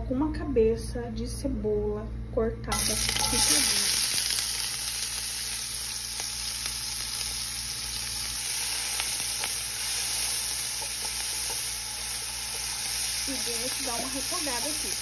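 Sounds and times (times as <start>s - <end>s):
onion sizzling in oil: 2.7s - 15.0s.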